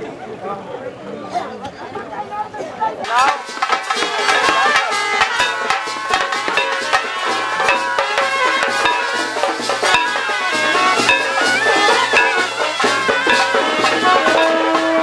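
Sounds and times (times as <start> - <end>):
drums beating: 3.0 - 15.0
wavering pitch-bending melody: 3.8 - 15.0.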